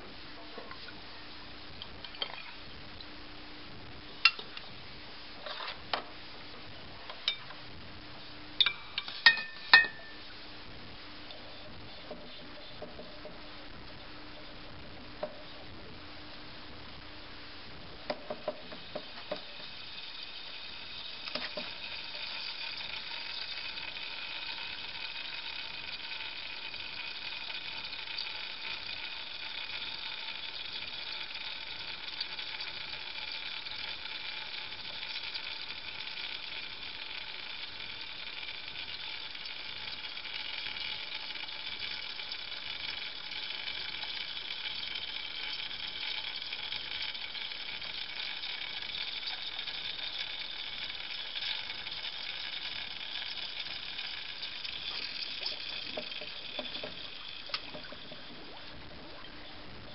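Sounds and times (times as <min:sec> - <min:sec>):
glass jar clicking on glass dish: 0:08.6 - 0:10.2.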